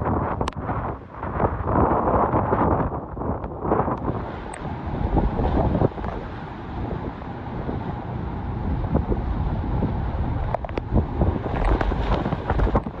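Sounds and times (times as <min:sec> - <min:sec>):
strong wind buffeting microphone: 0:00.0 - 0:13.0
heavy rain: 0:04.0 - 0:13.0.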